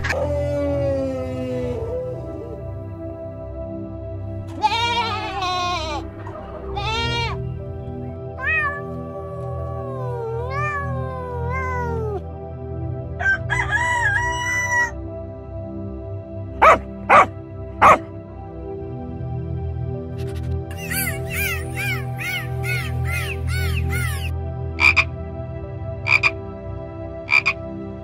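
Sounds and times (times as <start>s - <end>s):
background music: 0.0s - 28.0s
wavering animal calls: 4.5s - 7.7s, 8.4s - 12.2s, 16.6s - 18.0s, 20.2s - 25.1s, 26.1s - 26.3s
cat meowing: 4.6s - 6.0s, 6.7s - 7.5s, 8.3s - 12.2s.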